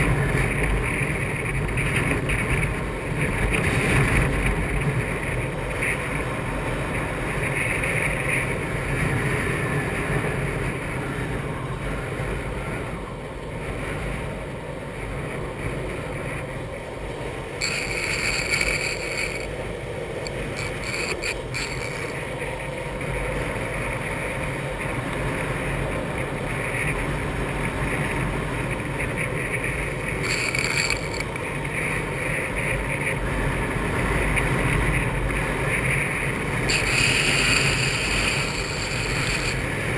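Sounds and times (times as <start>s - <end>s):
skateboard wheels rolling on asphalt: 0.0s - 39.9s
wind on microphone: 0.0s - 39.9s
high-pitched hiss: 17.6s - 19.5s, 20.2s - 22.2s, 30.2s - 31.3s, 36.7s - 39.8s.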